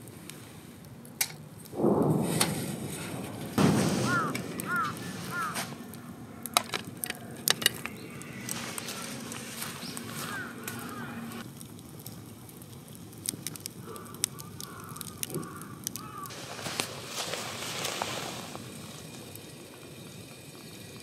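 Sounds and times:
bird calling: 0:03.8 - 0:11.4, 0:13.8 - 0:18.4.

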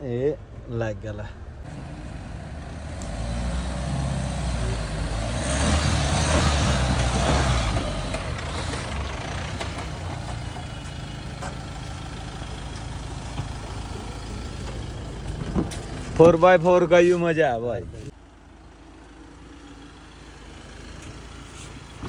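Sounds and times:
suv engine revving: 0:01.6 - 0:16.4.

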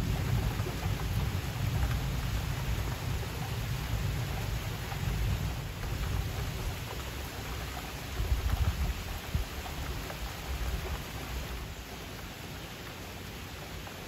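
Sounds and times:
distant thunder rumble: 0:00.0 - 0:07.6
steady rain: 0:00.0 - 0:14.0.

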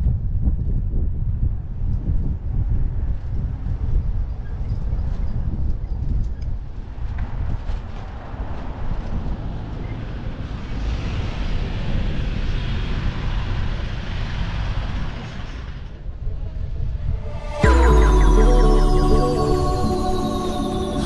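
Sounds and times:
wind rumble on microphone: 0:00.0 - 0:06.2
music: 0:17.2 - 0:21.0.

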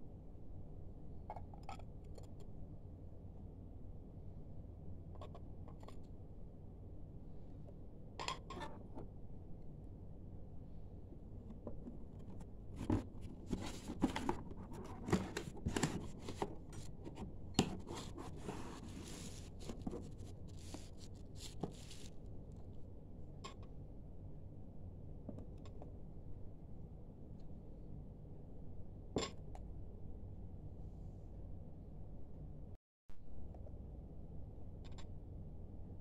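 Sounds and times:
cardboard packaging scraping: 0:12.8 - 0:22.2.

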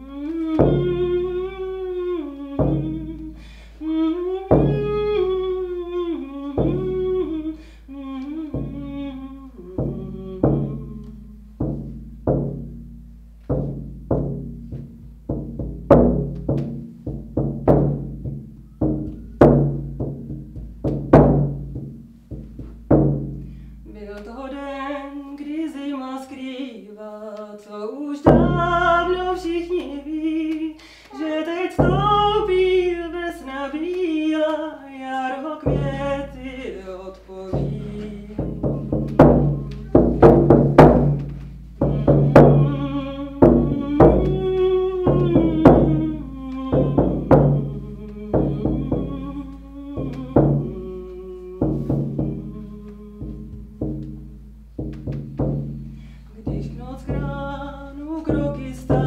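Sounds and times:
woman singing: 0:00.0 - 0:11.9, 0:23.8 - 0:54.4, 0:56.3 - 0:59.0
frame drum strikes: 0:00.5 - 0:01.3, 0:02.6 - 0:03.4, 0:04.5 - 0:05.3, 0:06.5 - 0:07.4, 0:08.4 - 0:09.0, 0:09.8 - 0:23.9, 0:28.3 - 0:29.8, 0:31.8 - 0:33.0, 0:35.6 - 0:36.7, 0:37.5 - 0:59.0.

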